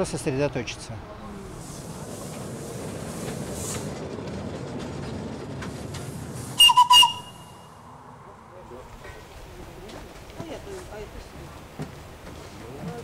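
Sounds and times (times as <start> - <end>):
small steam train rumbling: 0.0 - 13.0
train whistle toots: 6.6 - 7.8.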